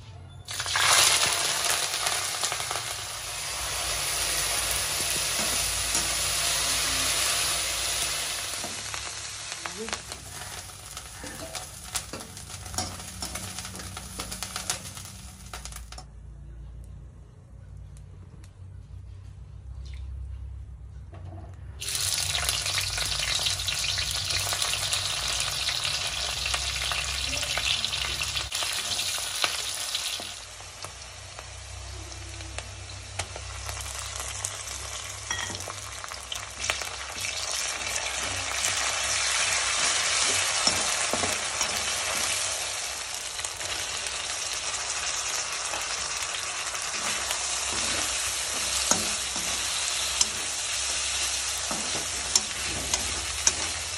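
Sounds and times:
onions sizzling in hot oil: 0.5 - 16.0, 21.8 - 53.9
spatula scraping pan: 46.9 - 53.9.

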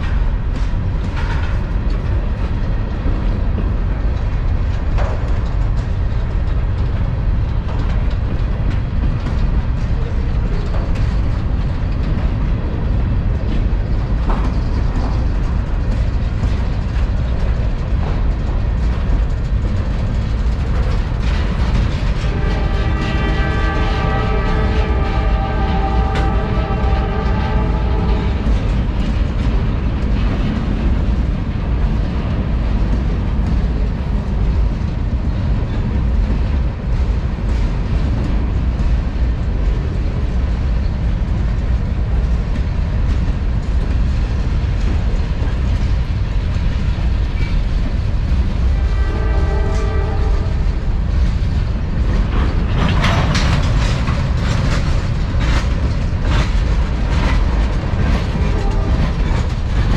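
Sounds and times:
freight train cars rumbling past: 0.0 - 59.9
wheel clacks and clanks: 0.0 - 59.9.

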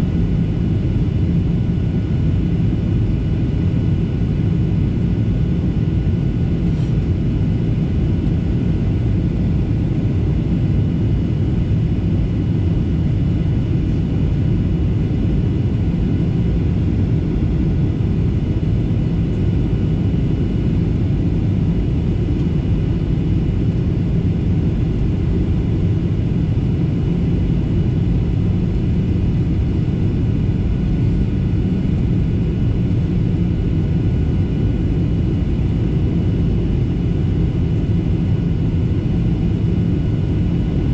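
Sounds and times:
airplane cabin rumble: 0.0 - 40.9.

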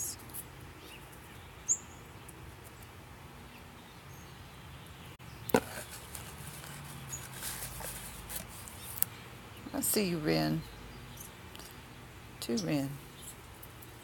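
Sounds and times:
high bird chip: 5.3 - 9.3.

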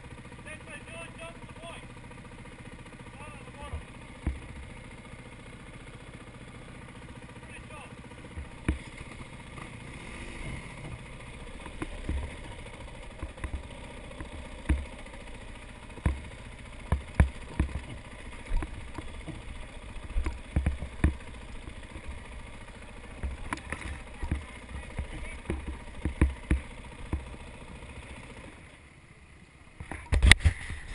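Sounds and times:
dirt bike engine at low revs: 0.0 - 30.9
sharp knocks and thumps: 3.7 - 4.8, 8.3 - 9.8, 10.8 - 22.2, 23.1 - 27.4.

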